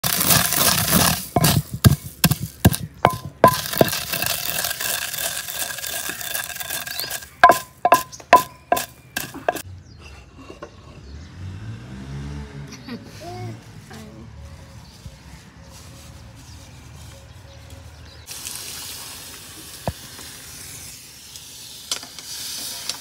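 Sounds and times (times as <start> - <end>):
pestle pounding seeds in mortar: 0.0 - 9.6
steady hiss: 18.3 - 23.0.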